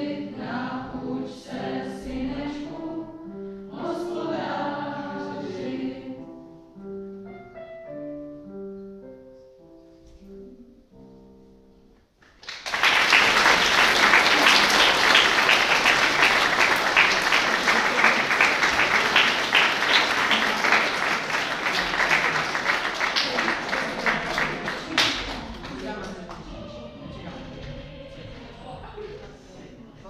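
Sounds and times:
audience applause: 12.2 - 26.4.

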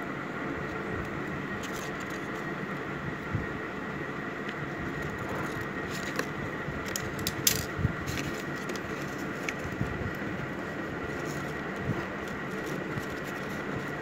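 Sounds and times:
paper folding and crackling: 1.5 - 2.6, 4.7 - 14.0
scissors cutting paper: 11.1 - 14.0.

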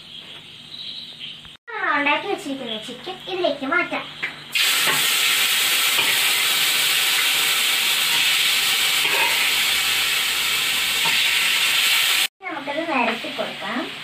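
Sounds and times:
food sizzling in oil: 4.5 - 14.0.

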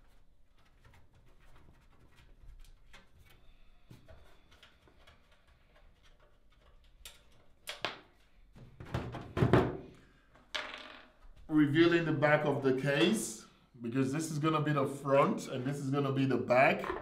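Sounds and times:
computer case knocks and thump: 8.8 - 9.8.

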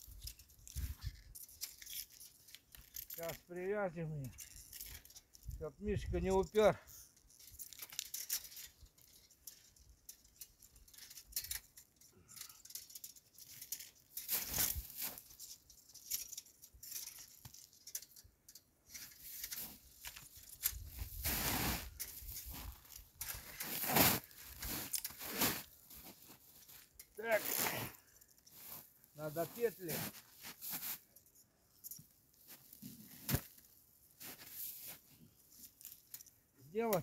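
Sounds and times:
cow hide rustling and scraping: 13.2 - 18.1, 18.9 - 31.3, 32.4 - 36.0
boots shifting in crusted snow: 20.9 - 28.0, 28.6 - 31.1, 34.2 - 35.1.

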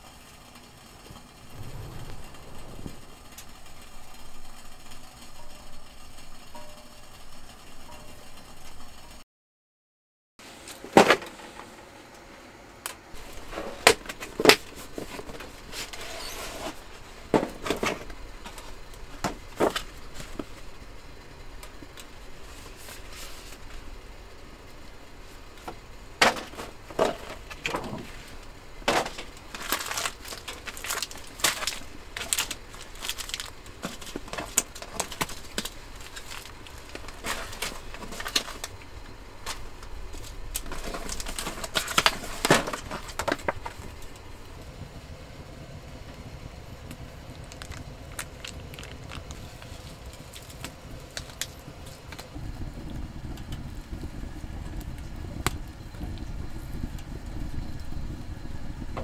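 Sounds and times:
plastic and paper crinkling: 28.9 - 38.8, 39.4 - 44.1, 47.3 - 52.3.

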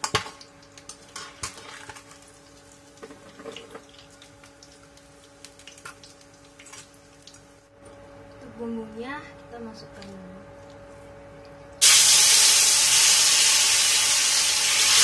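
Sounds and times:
hot oil sizzling and dripping: 0.0 - 7.7, 11.8 - 15.0.

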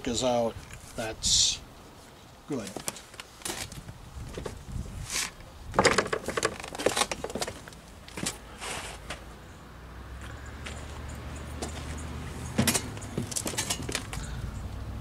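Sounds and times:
metal clicks and knocks: 5.8 - 7.6, 12.6 - 14.2.

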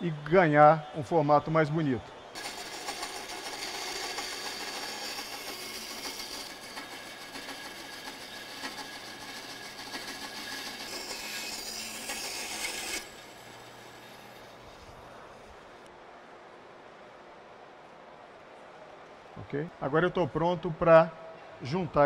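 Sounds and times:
bandsaw cutting wood: 2.4 - 15.9.

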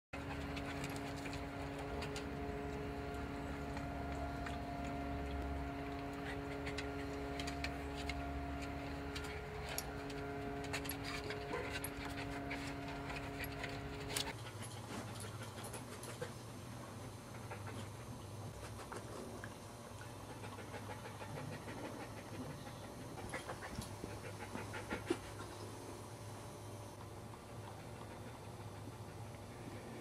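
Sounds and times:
machine hum: 0.2 - 14.4
dog panting: 0.2 - 19.3, 20.0 - 25.7, 27.0 - 30.0.

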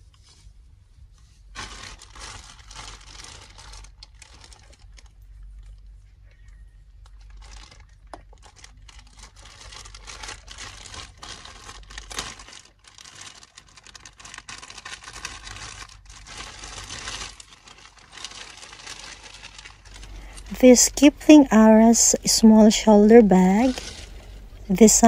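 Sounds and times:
plastic bag crinkling: 1.4 - 6.0, 7.0 - 25.0.

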